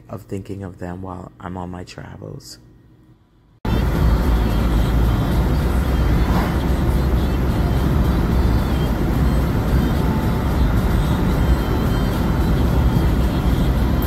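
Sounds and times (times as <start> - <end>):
road and wind noise in vehicle: 3.7 - 14.0.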